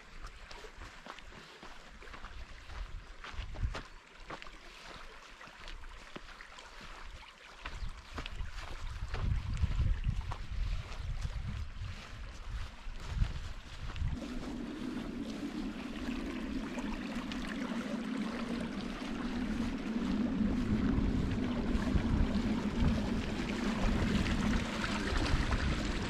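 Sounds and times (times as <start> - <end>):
stream trickling over stones: 0.0 - 10.8, 13.8 - 26.0
wind on microphone: 2.6 - 3.8, 7.8 - 26.0
steady low hum: 13.8 - 26.0.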